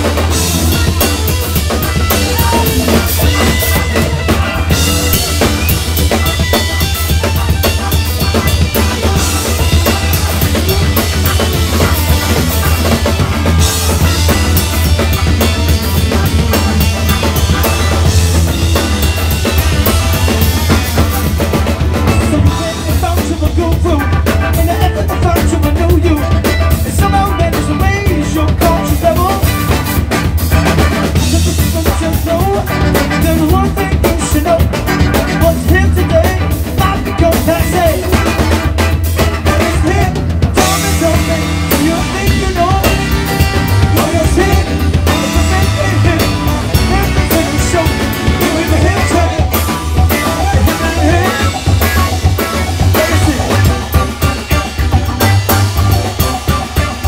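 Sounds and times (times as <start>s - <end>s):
person singing: 0.0s - 30.0s, 31.2s - 38.5s, 39.4s - 57.0s
drum kit with cymbals: 0.0s - 57.0s
electric bass: 0.0s - 57.0s
electric guitar: 0.0s - 57.0s
wavering melody line: 0.1s - 23.0s.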